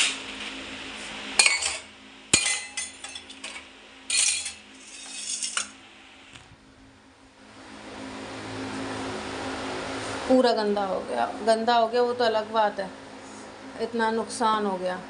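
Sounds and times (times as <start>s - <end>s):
utensils and pots clattering: 1.4s - 5.8s.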